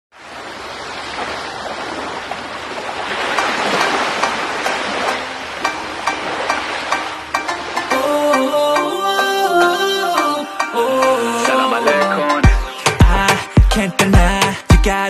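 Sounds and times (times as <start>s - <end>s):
light clicking beat: 3.4s - 15.0s.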